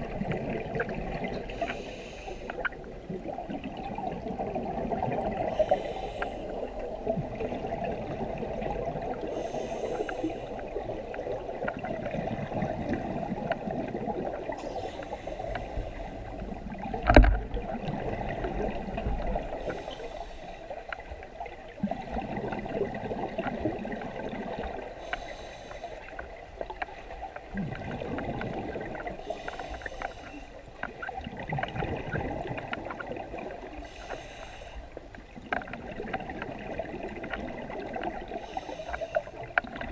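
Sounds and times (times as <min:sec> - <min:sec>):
regulator breath hissing: 0:01.6 - 0:02.5, 0:05.5 - 0:06.6, 0:09.3 - 0:10.6, 0:14.6 - 0:16.1, 0:19.6 - 0:20.6, 0:25.0 - 0:26.1, 0:29.2 - 0:30.6, 0:33.9 - 0:34.8, 0:38.4 - 0:39.3
bubbling of exhaled air: 0:27.5 - 0:34.6.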